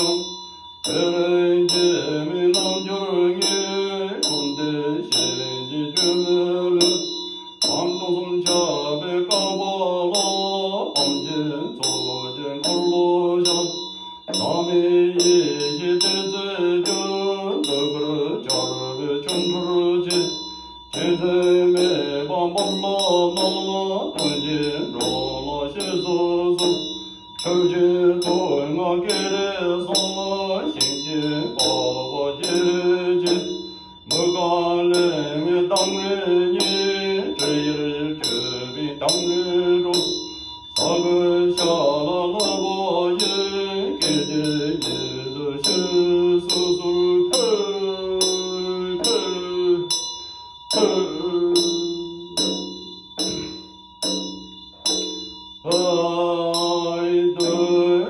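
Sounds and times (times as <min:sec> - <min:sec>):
man chanting: 0:00.0 - 0:50.1, 0:50.7 - 0:53.7, 0:55.7 - 0:58.0
hand bell ringing: 0:00.0 - 0:58.0
hand drum beating: 0:52.4 - 0:55.3.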